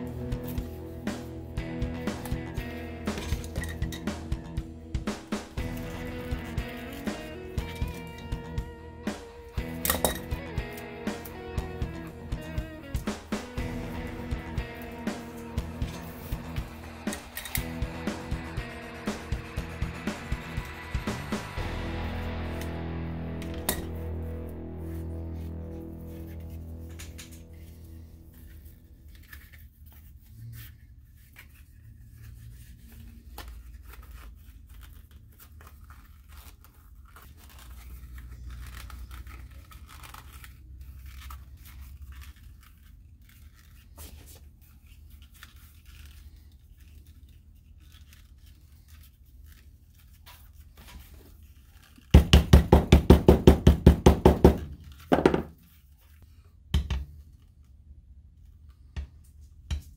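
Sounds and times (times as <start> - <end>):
hammer tapping rapidly: 52.2 - 55.2.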